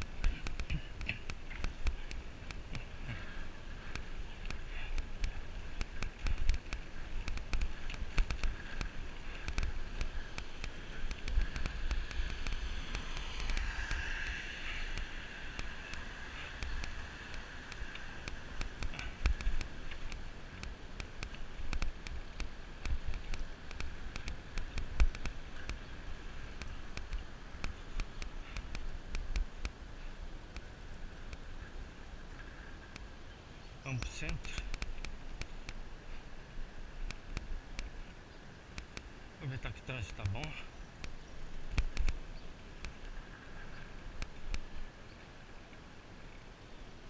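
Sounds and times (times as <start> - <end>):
bicycle clicks and rattles: 0.0 - 29.7.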